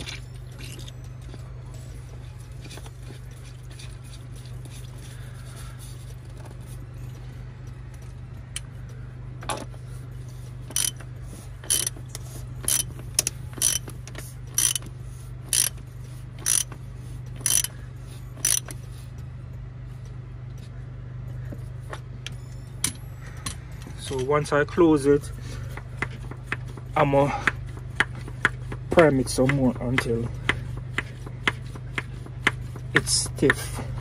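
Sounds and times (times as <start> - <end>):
steady low hum: 0.0 - 34.0
fuel primer pump clicks: 10.7 - 14.9, 15.5 - 15.8, 16.4 - 16.8, 17.4 - 17.7, 18.4 - 18.8.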